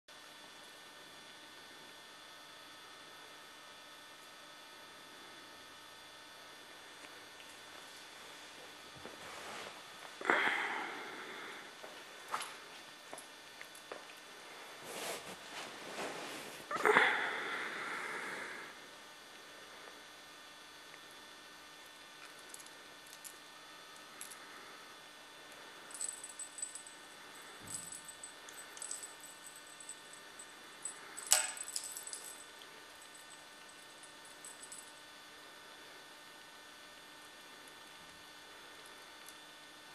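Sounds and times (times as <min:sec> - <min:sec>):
electrical hum and whine: 0:00.1 - 0:39.9
cat scuffling with toys: 0:09.0 - 0:09.8, 0:14.6 - 0:16.8
light metallic jingling: 0:25.9 - 0:35.0.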